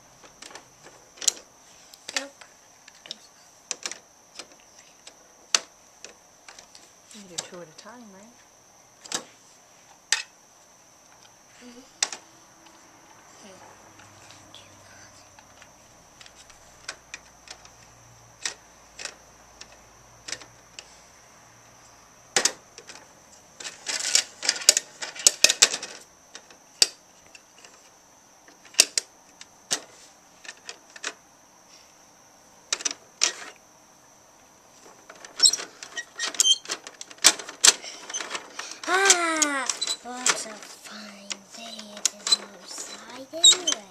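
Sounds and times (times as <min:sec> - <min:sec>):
plastic toy bins rattling: 0:22.4 - 0:26.6, 0:34.8 - 0:43.9
plastic toy clicking: 0:36.4 - 0:40.7, 0:41.3 - 0:43.8.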